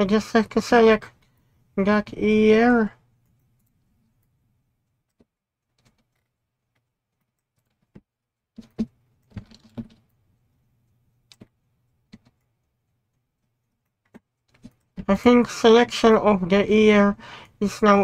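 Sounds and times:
faint low hum: 0.0s - 7.9s.

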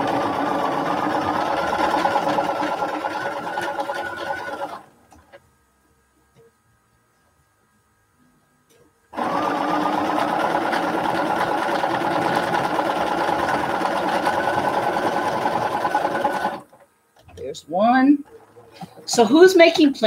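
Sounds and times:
sewing machine stitching: 0.0s - 4.9s, 9.2s - 16.8s.

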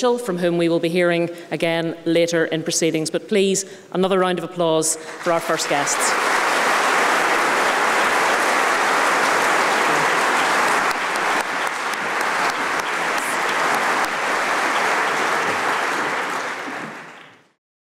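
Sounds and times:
audience applauding: 5.0s - 17.6s.

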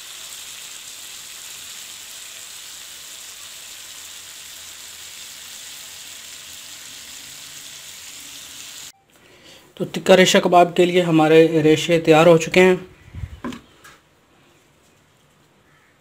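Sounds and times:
chicken frying in oil: 0.0s - 8.9s.

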